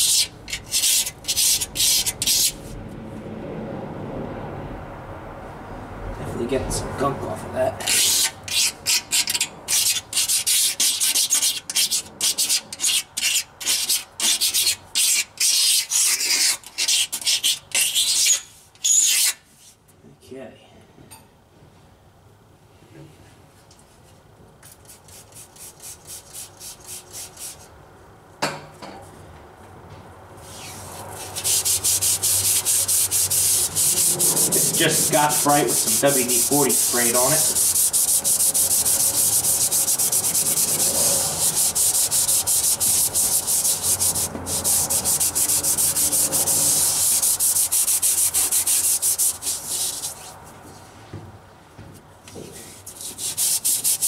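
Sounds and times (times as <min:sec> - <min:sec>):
abrasive pad scrubbing metal: 0:30.4 - 0:50.4.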